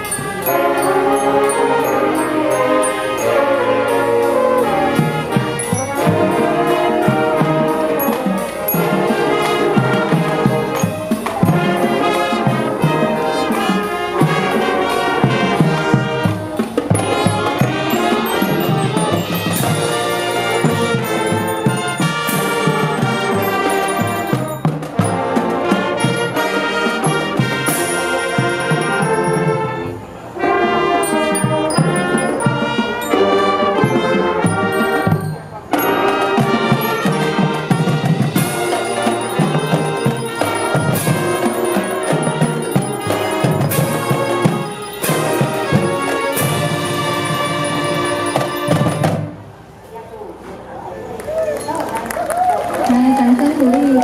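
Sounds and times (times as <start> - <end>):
drumline with cymbals: 0.0 - 49.8
marching band playing: 0.0 - 49.9.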